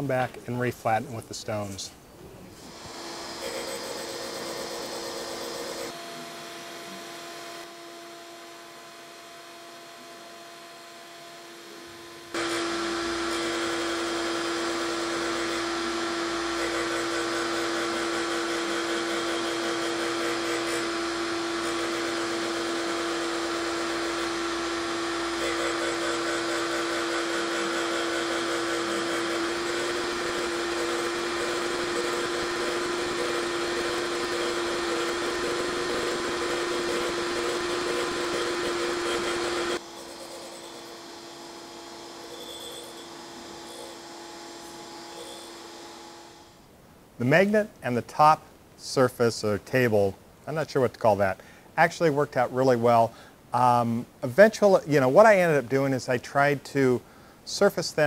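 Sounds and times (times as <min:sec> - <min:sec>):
grinding wheel hissing: 0:02.5 - 0:07.2, 0:11.5 - 0:46.6
grinder steady hum: 0:02.5 - 0:46.7
spindle whine: 0:11.6 - 0:46.6.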